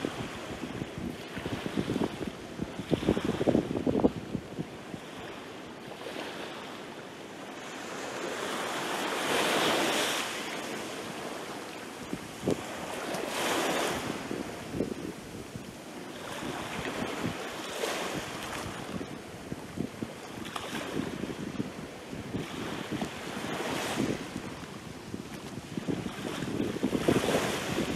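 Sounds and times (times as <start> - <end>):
small waves washing up beach: 0.0 - 27.9.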